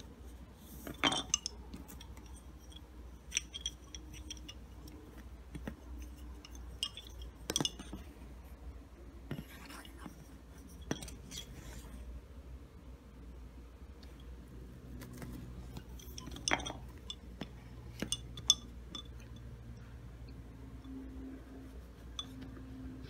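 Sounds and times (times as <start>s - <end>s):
wooden bobbins clicking: 0.0s - 8.1s.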